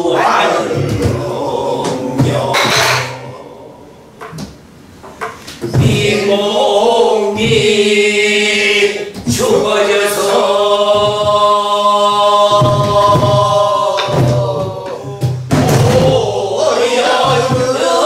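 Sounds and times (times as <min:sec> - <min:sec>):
barrel drum strokes: 0:12.5 - 0:18.0.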